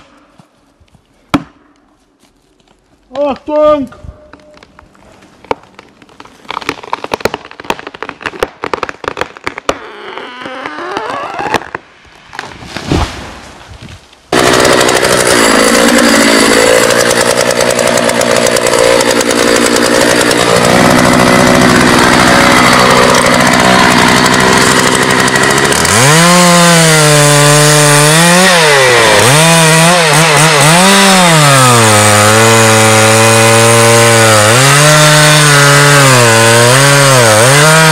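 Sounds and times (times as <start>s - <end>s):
wood cracking and snapping: 4.3s - 13.0s
chainsaw cutting tree trunk: 14.3s - 37.9s.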